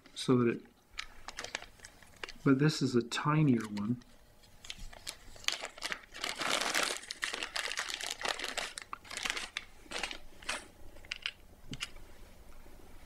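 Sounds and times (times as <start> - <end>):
plastic bag crinkling: 1.0 - 2.5, 3.4 - 11.4.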